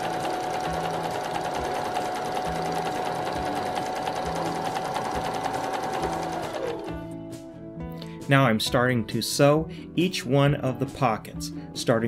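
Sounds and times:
electric sewing machine running: 0:00.0 - 0:07.0.

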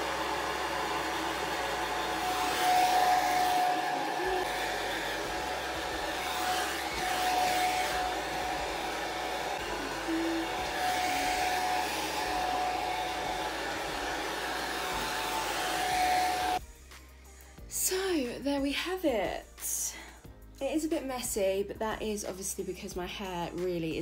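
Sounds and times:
hair dryer blowing: 0:00.0 - 0:16.6.

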